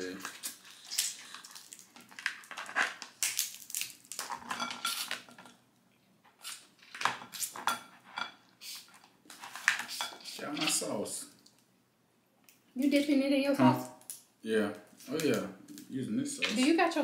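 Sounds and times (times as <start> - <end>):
crab shells cracking: 0.2 - 5.4.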